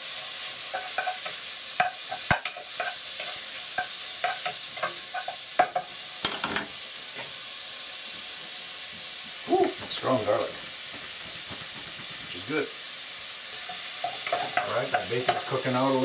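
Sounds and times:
bacon sizzling in a pot: 0.0 - 16.0
wooden spoon knocking on pot: 10.9 - 12.4.

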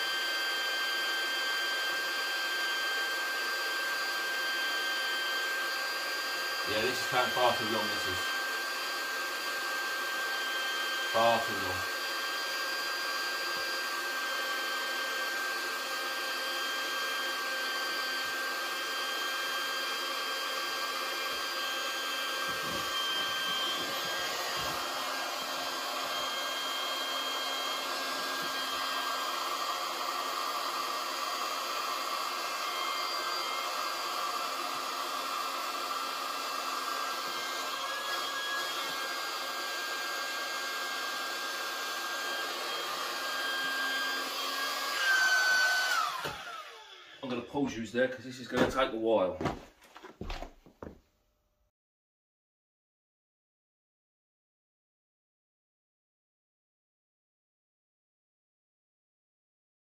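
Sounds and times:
electric air pump running: 0.0 - 47.4.

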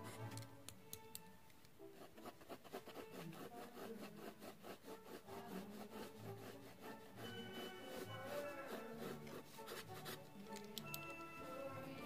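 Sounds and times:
pencil scratching on paper: 1.9 - 10.4, 11.1 - 12.0.

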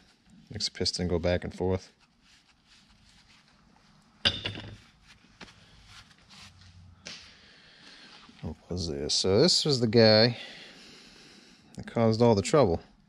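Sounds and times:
gloved hands rustling: 0.0 - 7.4
metal part knocking on workbench: 4.2 - 4.8.

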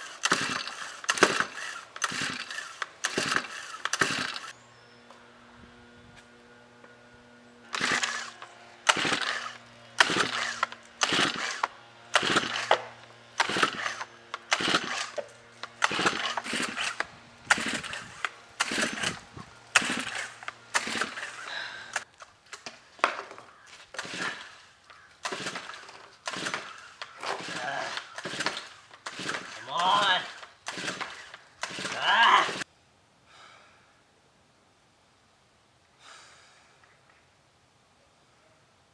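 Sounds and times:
string trimmer recoil starter pulls: 0.0 - 4.6, 7.6 - 32.6.

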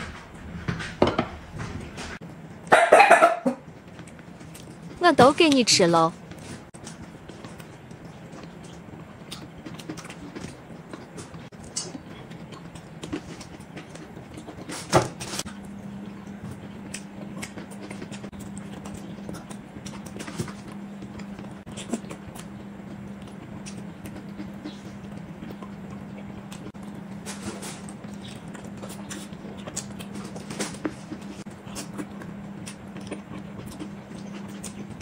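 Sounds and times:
low steady hum: 0.0 - 35.0
chewing: 3.7 - 5.0, 6.3 - 35.0.

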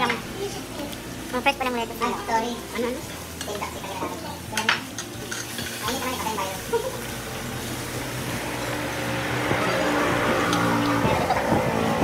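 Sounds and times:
pork sizzling on grill: 0.0 - 12.0
utensils clinking against dishes: 2.0 - 7.2.

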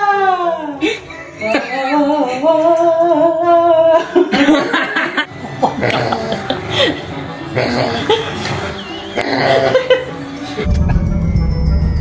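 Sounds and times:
laughter: 4.0 - 7.1, 9.6 - 11.0.

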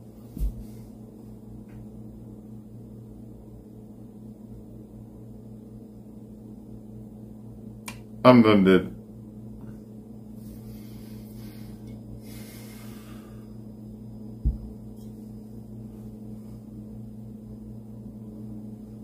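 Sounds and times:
low electrical hum: 0.0 - 19.0
dull thump: 14.4 - 14.8.

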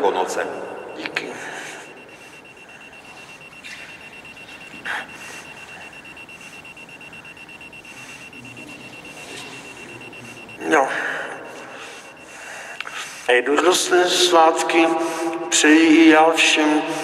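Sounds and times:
high-pitched electronic beeping: 0.0 - 17.0.

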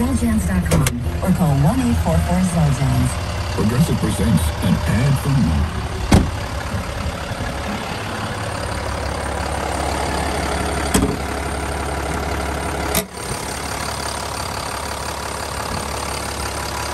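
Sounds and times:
diesel engine idling: 0.0 - 16.9.

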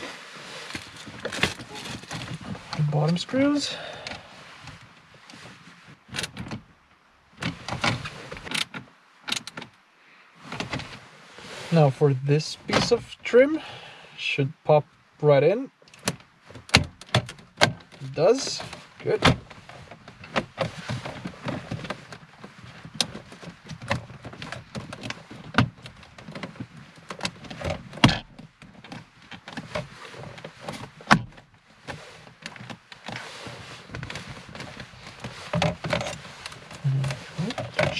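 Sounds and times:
light rustling: 15.9 - 37.9.

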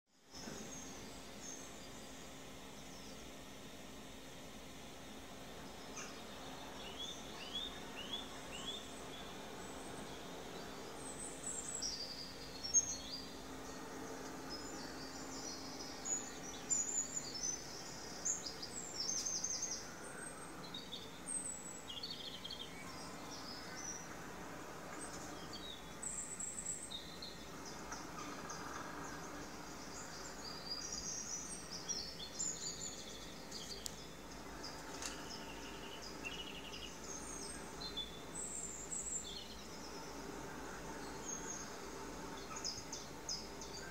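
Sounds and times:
songbirds chirping on television: 0.1 - 43.9.

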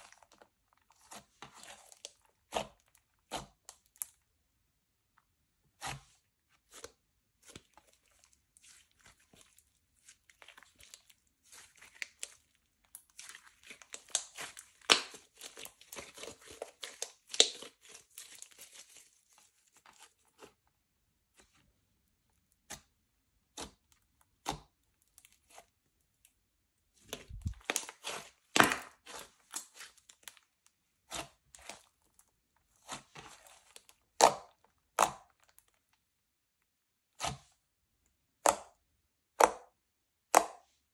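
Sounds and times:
slime crackling and popping: 8.6 - 20.1, 27.1 - 30.4.

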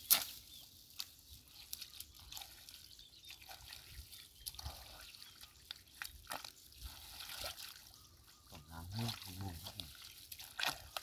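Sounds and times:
hands scooping wet mud: 0.0 - 11.0
water dripping and splashing: 0.0 - 11.0.

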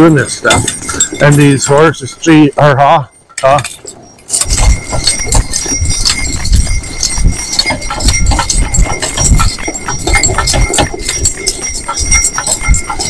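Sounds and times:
hoofbeats on snowy road: 0.0 - 2.5, 3.6 - 13.0
high jingling and clicking: 0.0 - 13.0.

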